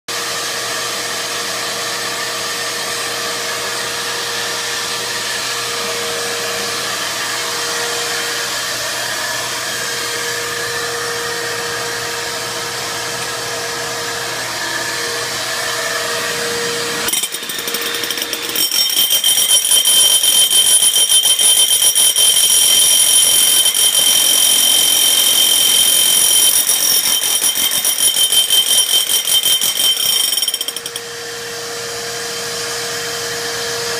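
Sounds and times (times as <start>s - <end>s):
hammer drill boring into concrete: 15.2s - 31.2s.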